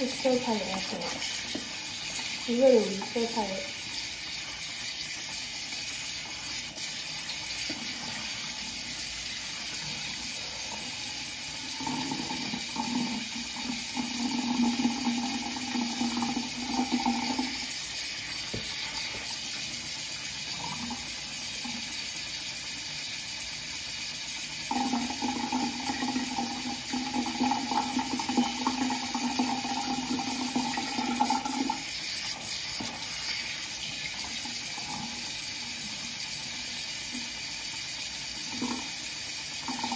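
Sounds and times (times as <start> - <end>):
tap running: 0.0 - 10.4, 11.6 - 19.9, 24.7 - 35.5.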